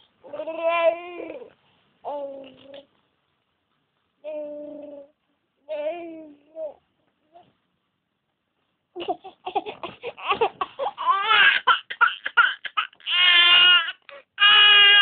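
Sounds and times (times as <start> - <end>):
baby crying: 9.2 - 15.0.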